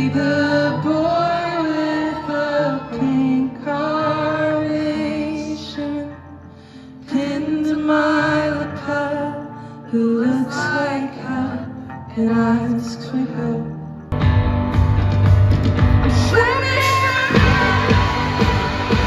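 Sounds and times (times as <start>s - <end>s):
live band playing: 14.2s - 19.0s.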